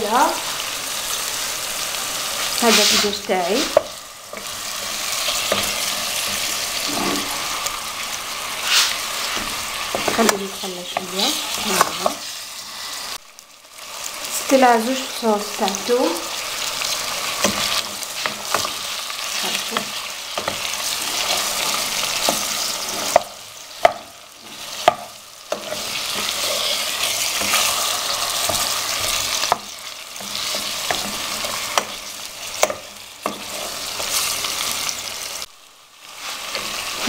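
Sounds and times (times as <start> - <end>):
chicken and onion sizzling in oil: 0.0 - 37.0
wooden spoon knocking on pan: 23.1 - 24.1, 24.8 - 25.7.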